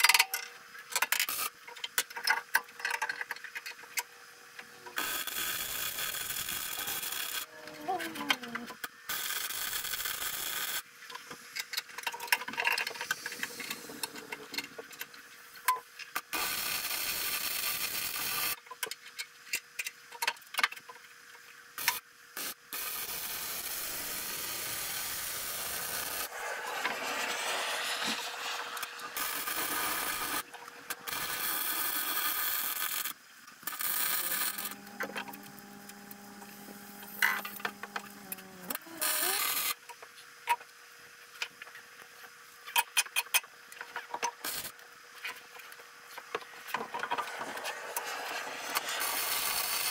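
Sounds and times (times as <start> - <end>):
welding crackling hiss: 1.0 - 1.6, 5.0 - 10.8, 11.5 - 18.6, 21.8 - 39.9, 44.4 - 49.9.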